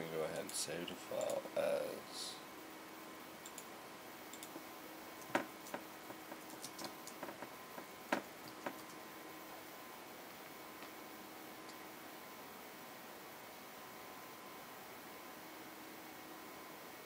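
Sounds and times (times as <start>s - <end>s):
faint steady hiss: 0.0s - 17.0s
computer keyboard and mouse clicks: 3.4s - 3.7s, 4.3s - 4.6s, 5.2s - 7.5s, 8.1s - 9.0s.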